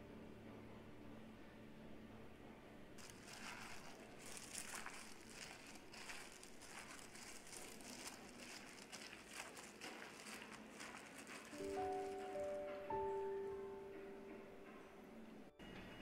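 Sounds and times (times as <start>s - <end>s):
hands mixing wet food: 3.0s - 13.2s.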